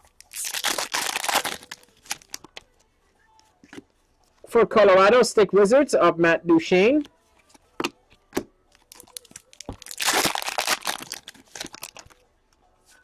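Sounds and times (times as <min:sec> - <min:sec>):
foil card pack crinkling: 0:00.2 - 0:02.4, 0:08.9 - 0:12.2.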